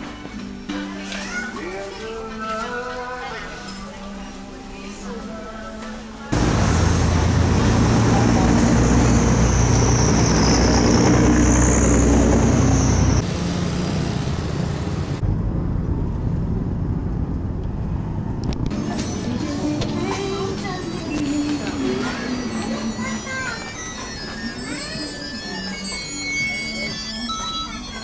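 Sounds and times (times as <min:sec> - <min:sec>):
heavy low rumble: 0:06.4 - 0:13.2, 0:15.0 - 0:19.3
motor vehicles running: 0:06.4 - 0:23.1.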